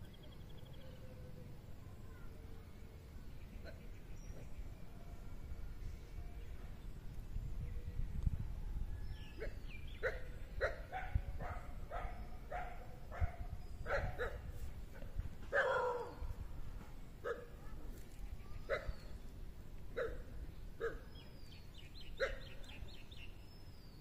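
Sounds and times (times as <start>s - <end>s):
steady low rumble: 1.3s - 22.0s
dog barking: 9.4s - 14.4s, 15.5s - 16.2s, 17.2s - 17.6s, 20.0s - 20.2s, 20.8s - 21.0s, 22.2s - 22.6s.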